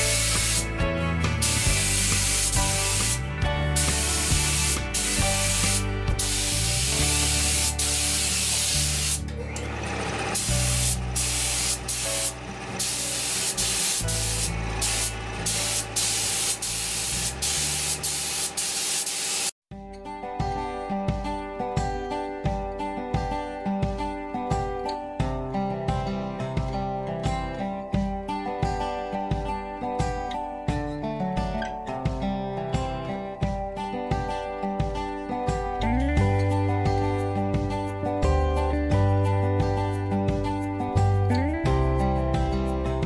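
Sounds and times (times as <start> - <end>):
air spray gun hissing: 0.0 - 0.7, 1.3 - 9.2, 10.0 - 19.6.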